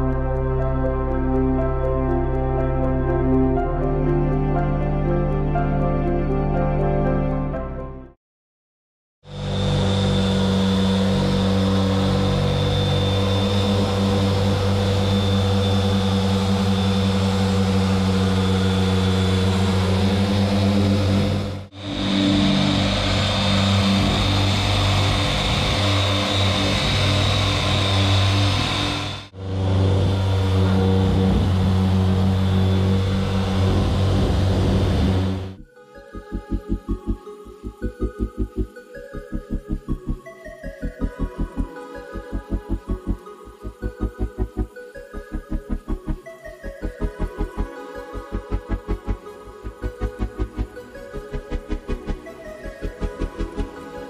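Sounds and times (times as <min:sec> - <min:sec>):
electric sander motor whine: 0:09.2 - 0:54.0
dust extraction vacuum: 0:09.3 - 0:35.6.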